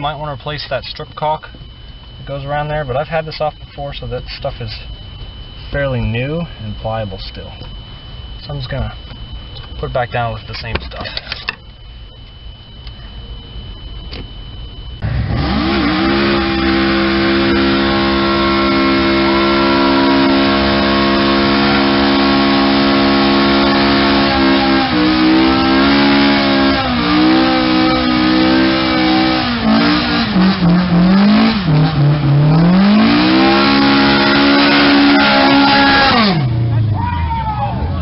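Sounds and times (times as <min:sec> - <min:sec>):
car engine revving: 0:15.0 - 0:37.0.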